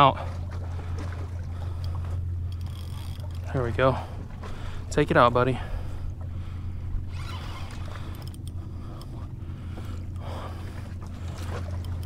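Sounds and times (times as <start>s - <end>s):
low rumble: 0.0s - 12.0s
fishing reel rasping: 1.8s - 3.6s, 7.1s - 9.3s.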